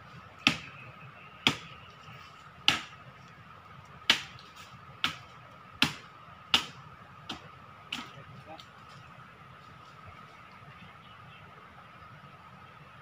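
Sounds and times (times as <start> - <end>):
machete chopping into tree trunk: 0.4 - 0.7, 1.4 - 1.7, 2.6 - 3.0, 4.0 - 8.1.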